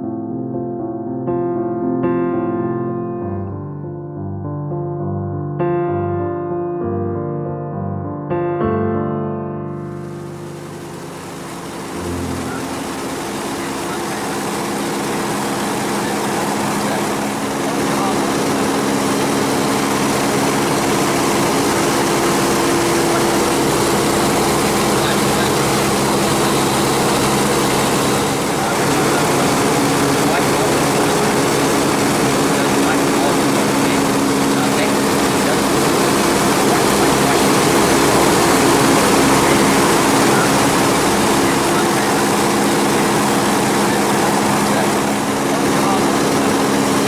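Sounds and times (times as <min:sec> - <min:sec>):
aircraft engine and propeller droning: 0:09.8 - 0:47.0.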